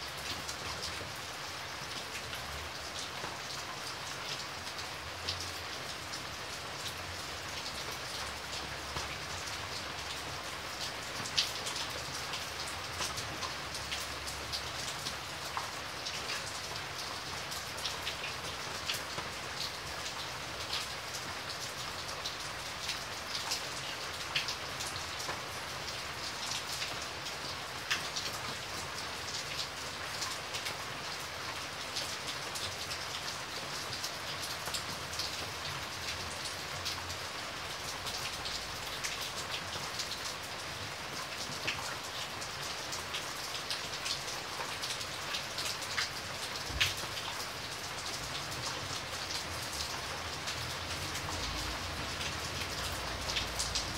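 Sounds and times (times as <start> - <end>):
heavy rain falling: 0.0 - 53.9
raindrops tapping close by: 34.7 - 53.9.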